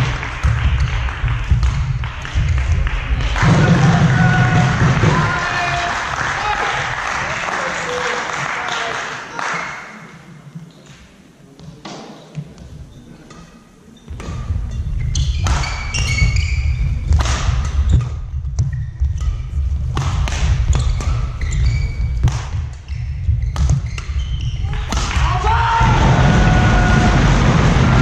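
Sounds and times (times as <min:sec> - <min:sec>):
shoe squeaks on court floor: 0:12.9 - 0:16.9, 0:20.7 - 0:24.7
racket hitting shuttlecock: 0:15.1 - 0:25.3
steady low rumble: 0:25.8 - 0:28.0.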